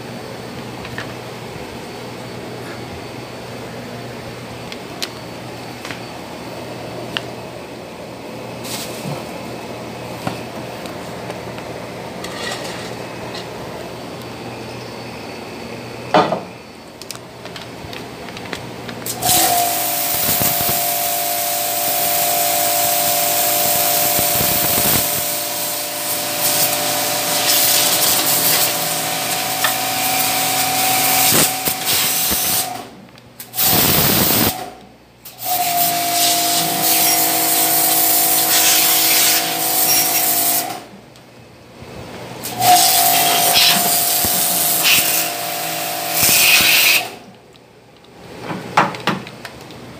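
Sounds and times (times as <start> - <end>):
pressure washer whine: 19.0 - 32.9, 33.6 - 34.8, 35.4 - 40.9, 42.4 - 47.3
water jet spraying tiles: 19.1 - 32.7, 35.9 - 40.7, 42.7 - 47.1.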